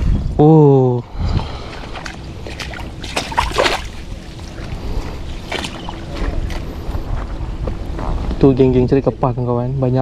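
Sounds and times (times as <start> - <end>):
wind rumbling on microphone: 0.0 - 10.0
water splash and slosh: 1.7 - 6.7.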